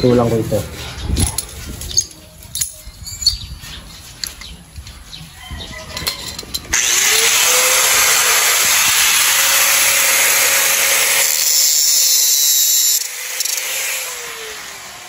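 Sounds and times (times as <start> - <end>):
angle grinder motor whine: 6.7 - 15.0.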